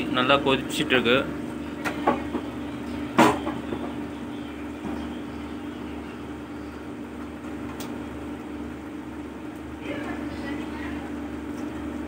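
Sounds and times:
even hum: 0.0s - 12.0s.

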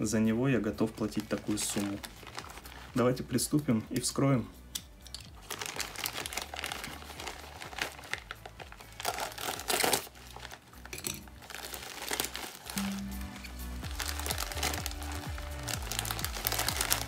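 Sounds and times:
plastic mailer crinkling and rustling: 0.8s - 3.4s, 5.3s - 17.0s
plastic mailer tearing: 1.0s - 3.0s, 5.4s - 12.8s, 13.8s - 17.0s.

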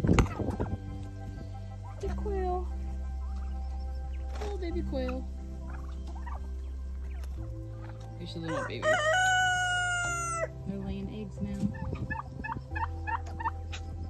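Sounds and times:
low background music: 0.0s - 14.0s
rooster crowing: 8.5s - 10.5s.

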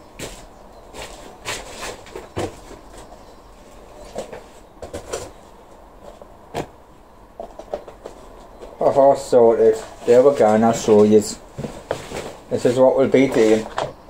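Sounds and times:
plastic pots knocking and clicking: 7.4s - 8.8s
rustling: 9.6s - 14.0s.

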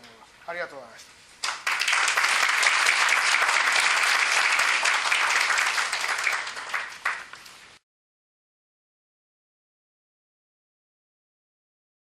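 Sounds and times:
audience applauding: 1.4s - 7.4s.

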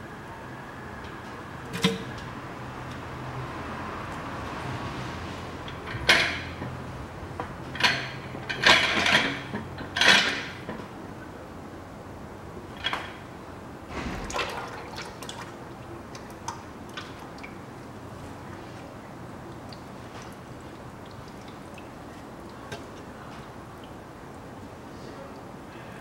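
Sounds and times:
oil dripping into a basin: 14.2s - 25.6s.

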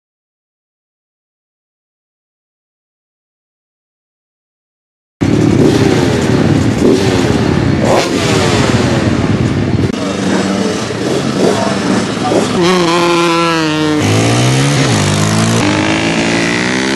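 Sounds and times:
off-road motorcycle engines revving: 5.2s - 16.9s.

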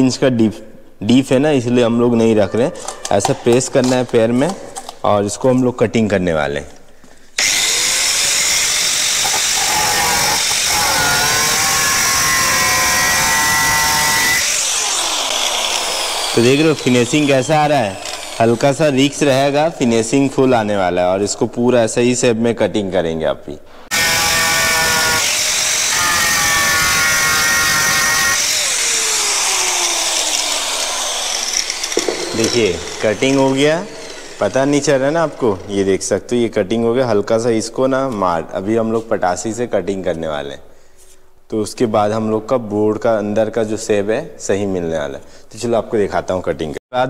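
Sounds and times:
angle grinder cutting whine: 7.4s - 19.6s, 23.9s - 36.2s.

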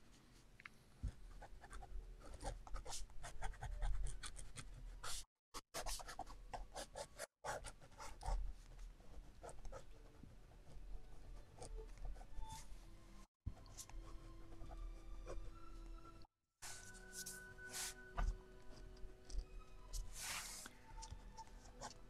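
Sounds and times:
brush strokes on painting: 16.6s - 22.0s.

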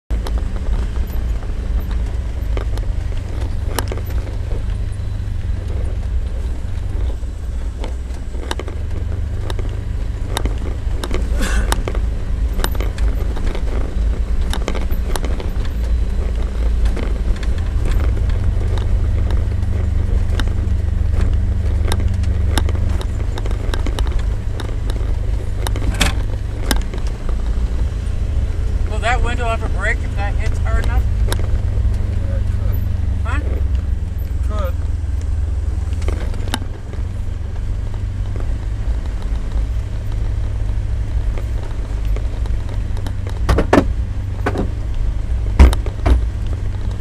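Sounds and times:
off-road vehicle engine: 0.0s - 47.0s
vehicle rattling over stones: 0.0s - 47.0s.

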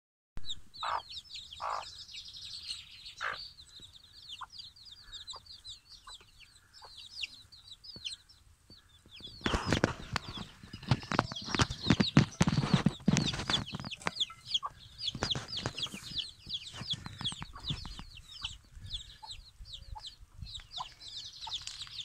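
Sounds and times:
chicks peeping: 0.4s - 22.0s
hen clucking: 0.8s - 22.0s
loud scuffling: 9.5s - 14.1s.

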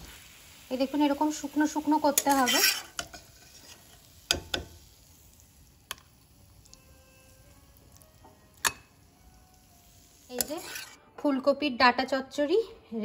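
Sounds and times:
spatula knocking on steel pan: 4.3s - 4.8s.

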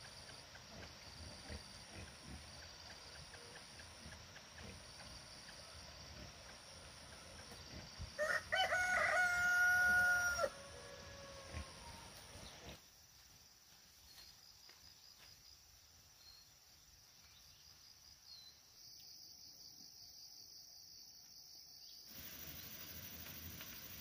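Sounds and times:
rooster crowing: 8.2s - 12.1s
high-pitched insect drone: 22.1s - 24.0s.

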